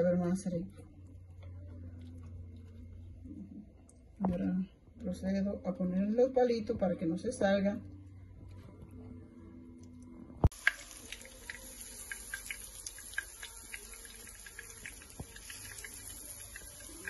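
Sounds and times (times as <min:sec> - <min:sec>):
hot oil sizzling and popping: 0:10.4 - 0:17.0.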